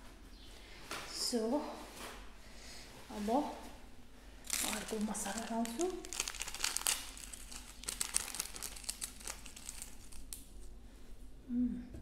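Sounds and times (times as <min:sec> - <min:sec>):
plastic sachet crinkling and tearing: 0:04.4 - 0:10.7.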